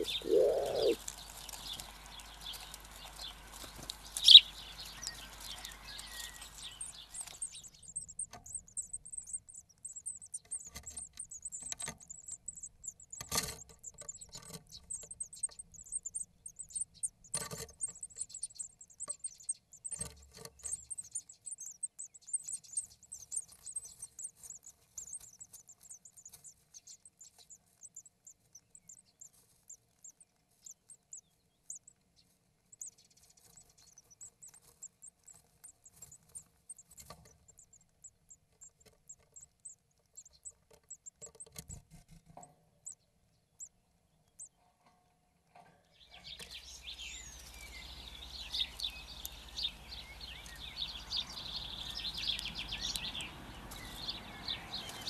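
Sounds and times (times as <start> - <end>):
nestlings begging cheeps: 0.0 - 17.1, 46.4 - 55.0
scratching and rustling in nest: 0.0 - 21.4, 22.6 - 42.4, 46.2 - 55.0
birdsong: 0.0 - 55.0.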